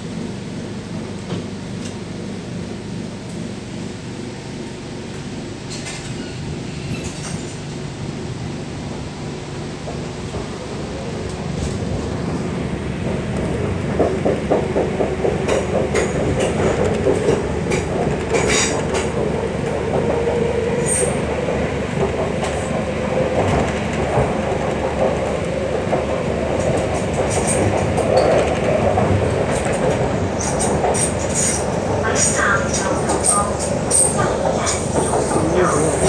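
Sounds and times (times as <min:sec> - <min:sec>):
train rolling rumble: 0:00.0 - 0:36.0.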